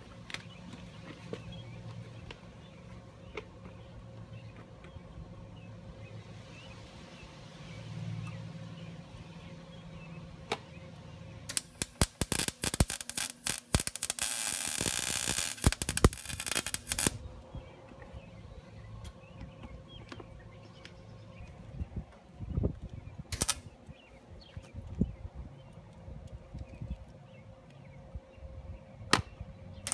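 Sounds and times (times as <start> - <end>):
welding arc crackling: 11.5 - 17.2, 23.3 - 23.7.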